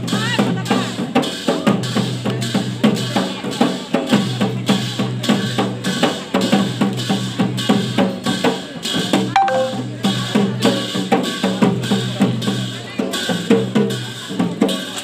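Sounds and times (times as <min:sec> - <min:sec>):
drums beating: 0:09.0 - 0:12.4
sharp metallic strikes: 0:09.4 - 0:09.9
short held tone: 0:09.4 - 0:09.9.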